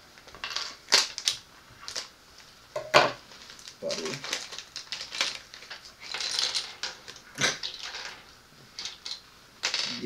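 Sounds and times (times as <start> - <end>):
plastic pieces clicking together: 3.6 - 8.2.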